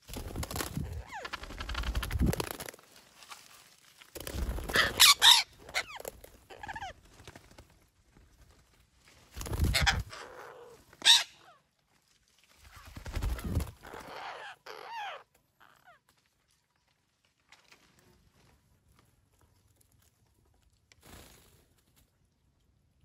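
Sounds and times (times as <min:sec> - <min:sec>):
parakeets giving harsh calls: 0:04.7 - 0:06.9, 0:09.6 - 0:11.5, 0:13.4 - 0:15.2.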